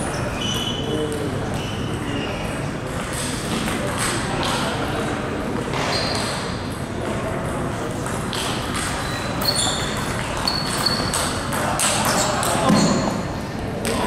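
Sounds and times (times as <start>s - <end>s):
short high squeaks: 0.0s - 0.9s, 5.9s - 6.3s, 9.0s - 11.3s.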